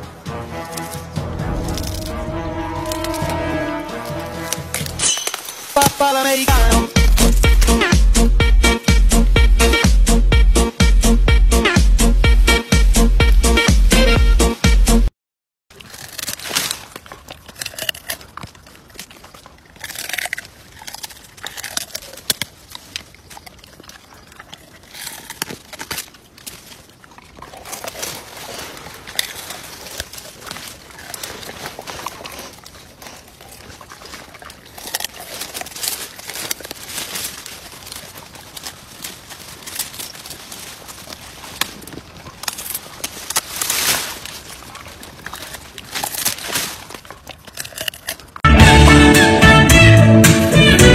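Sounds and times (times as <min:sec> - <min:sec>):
dog chewing hard food: 0:06.5 - 0:09.8, 0:15.7 - 0:48.5.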